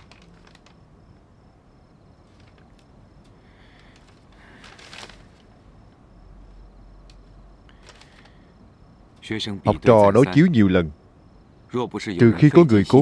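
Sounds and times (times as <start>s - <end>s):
low room hum: 0.0s - 13.0s
faint rustling: 2.2s - 9.3s.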